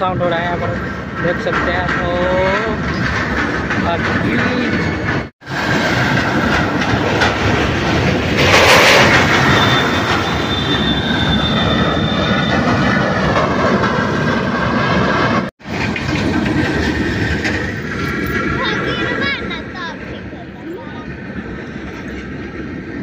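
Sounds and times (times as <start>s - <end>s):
steel deck plates rattling and clanking: 0.6s - 10.3s
high metallic squeal: 9.0s - 13.0s.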